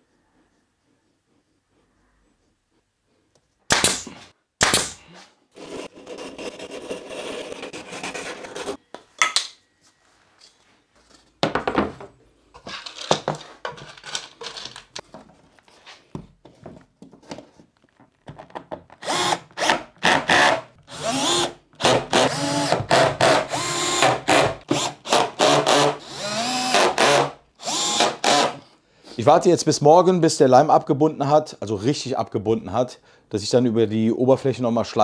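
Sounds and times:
hand saw cutting wood: 4.8 - 8.8, 19.0 - 28.6
knocks and handling sounds: 8.4 - 19.1
cordless drill driving screws: 19.0 - 28.6.

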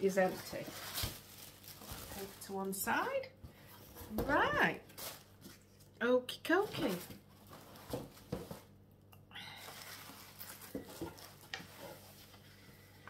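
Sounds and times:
paper and cardboard rustling: 0.0 - 3.0, 6.5 - 8.7, 9.6 - 12.7.

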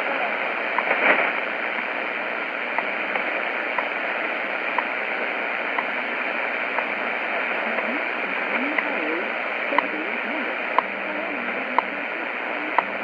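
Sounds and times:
radio static hiss: 0.0 - 13.0
faint low hum pulses: 5.7 - 13.0.

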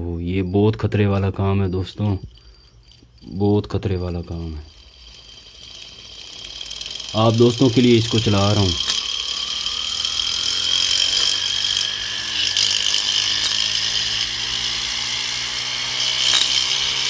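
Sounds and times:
small motor high whine: 0.5 - 17.0.

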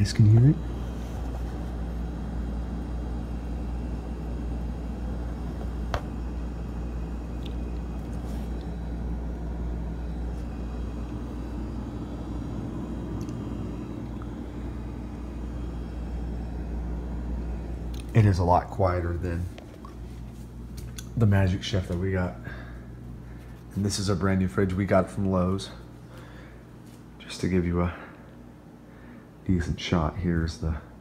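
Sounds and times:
refrigerator humming: 0.0 - 31.0.

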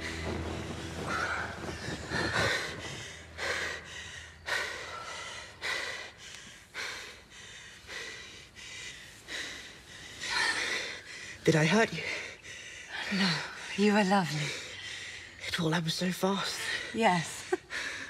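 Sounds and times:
man and woman breathing heavily: 0.0 - 18.0
sharp gasping breaths: 1.1 - 11.4.

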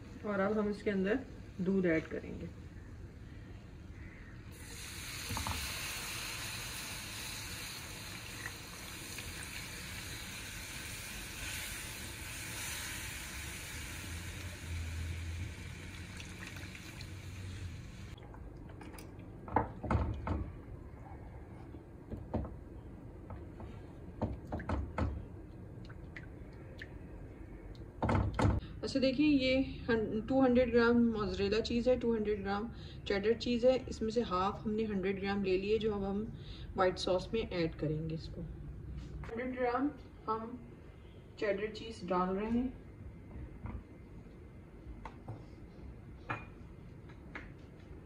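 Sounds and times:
milk sizzling in hot pan: 4.6 - 18.2.

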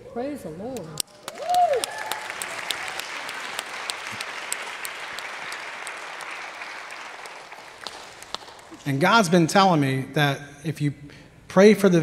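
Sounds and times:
congregation applauding: 1.0 - 8.9.

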